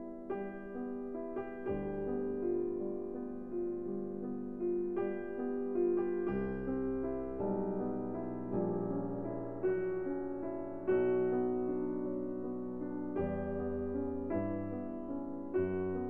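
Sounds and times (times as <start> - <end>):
gentle piano music: 0.0 - 16.0.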